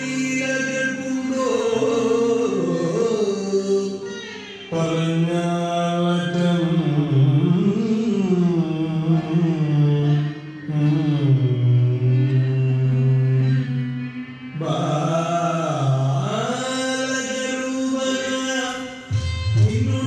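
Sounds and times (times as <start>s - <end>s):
person singing: 0.0s - 20.0s.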